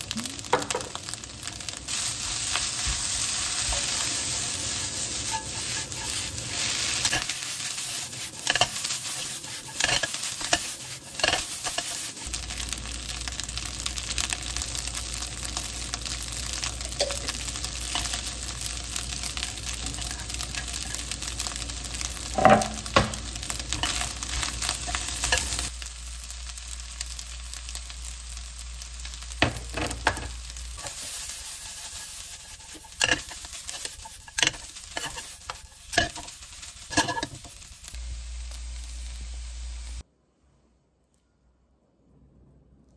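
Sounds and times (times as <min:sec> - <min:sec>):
rice sizzling in a hot pan: 0:00.0 - 0:40.0
spatula scraping a pan: 0:01.9 - 0:12.7, 0:16.1 - 0:25.7, 0:29.4 - 0:37.9.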